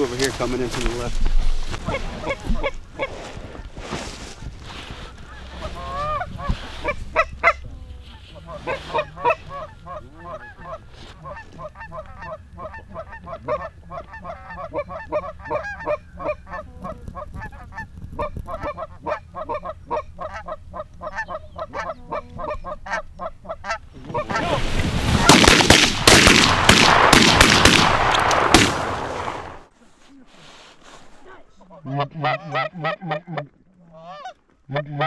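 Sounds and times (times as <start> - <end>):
goose honks and clucks: 1.8 - 3.1, 5.1 - 24.6, 31.6 - 35.0.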